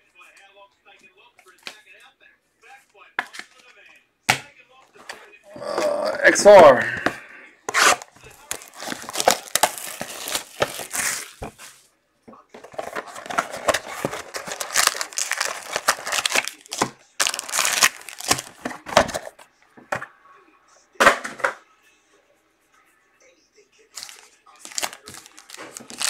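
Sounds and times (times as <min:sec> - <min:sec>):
foil packs rustling: 0:07.8 - 0:11.8, 0:12.6 - 0:19.4, 0:23.9 - 0:26.0
plastic wrap crinkling and tearing: 0:07.8 - 0:11.8, 0:12.7 - 0:19.4, 0:23.9 - 0:26.0.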